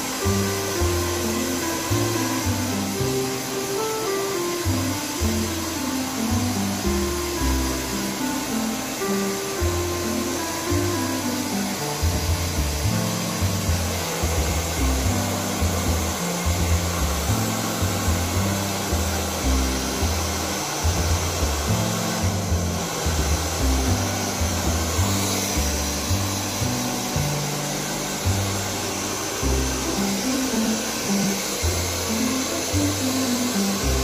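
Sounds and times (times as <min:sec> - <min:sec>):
hair dryer running: 0:00.0 - 0:34.0
background music with bass: 0:09.6 - 0:31.0.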